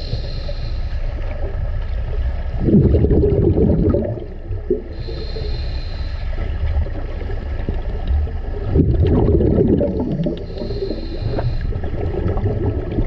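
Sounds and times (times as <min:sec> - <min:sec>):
regulator air hiss on inhale: 0:00.0 - 0:01.7, 0:04.7 - 0:07.0, 0:10.1 - 0:12.1
exhaled bubbles gurgling: 0:01.3 - 0:05.6, 0:06.4 - 0:13.0.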